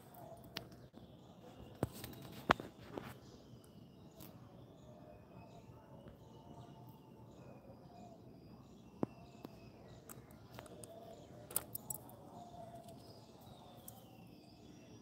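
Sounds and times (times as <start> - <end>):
sharp clicks: 9.0 - 12.1.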